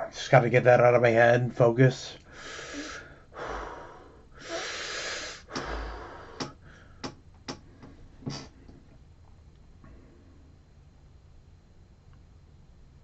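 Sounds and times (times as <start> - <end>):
man breathing deeply: 2.2 - 8.9.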